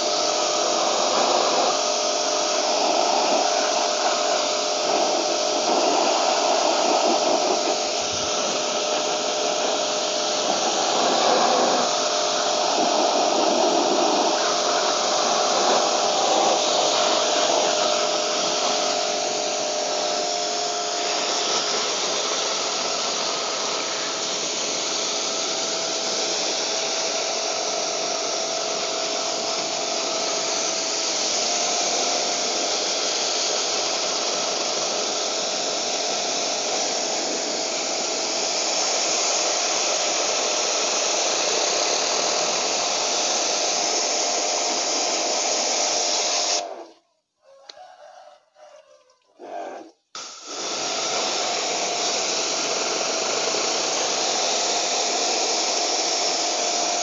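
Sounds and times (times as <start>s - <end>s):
water spraying on metal fins: 0.0s - 19.0s
pressure washer motor whine: 0.0s - 47.0s, 49.4s - 57.0s.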